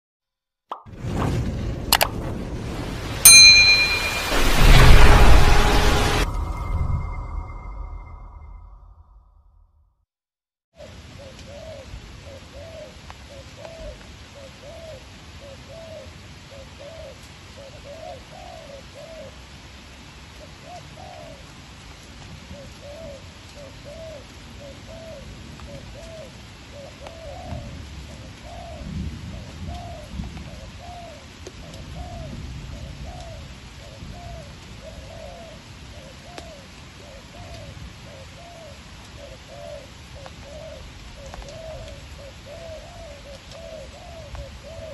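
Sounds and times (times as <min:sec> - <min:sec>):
low rumble: 0:01.0 - 0:09.7
dove cooing: 0:22.6 - 0:44.9.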